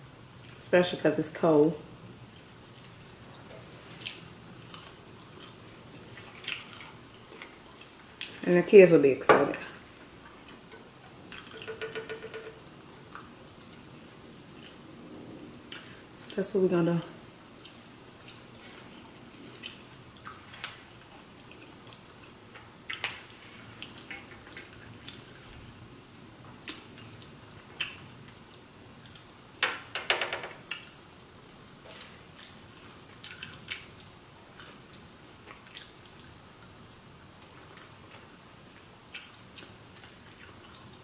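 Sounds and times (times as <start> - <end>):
chewing and biting: 4.0 - 5.6.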